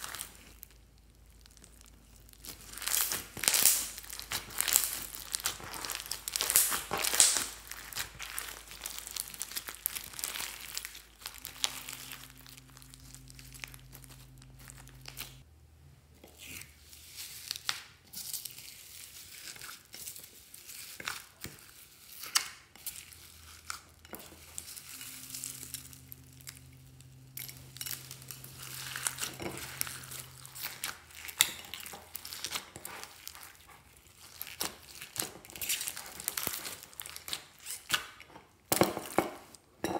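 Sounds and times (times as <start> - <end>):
slime crackling and squishing: 0.0 - 15.4, 16.2 - 38.3.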